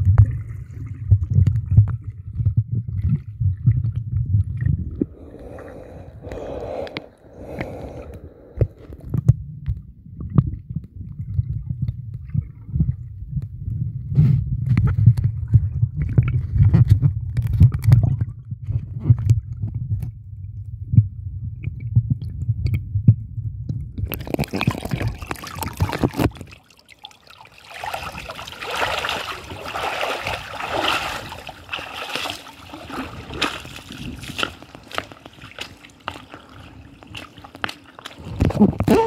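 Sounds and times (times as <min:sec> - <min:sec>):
water splashing and sloshing: 0:00.0 - 0:13.3, 0:14.2 - 0:20.2, 0:24.0 - 0:39.0
muffled underwater rumble: 0:00.0 - 0:26.5, 0:38.2 - 0:39.0.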